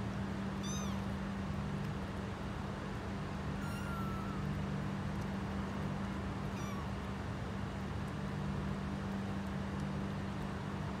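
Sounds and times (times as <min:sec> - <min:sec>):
kitten mewing: 0:06.6 - 0:06.9.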